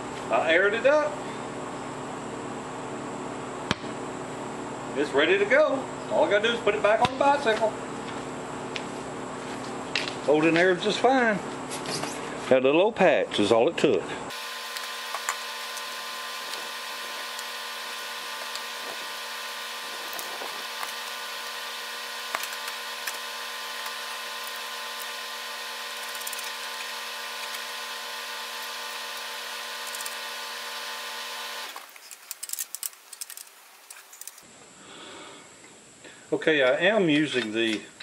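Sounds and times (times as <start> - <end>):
machine motor humming: 14.3 - 31.9
bicycle wheel clicks and rattles: 31.8 - 34.4.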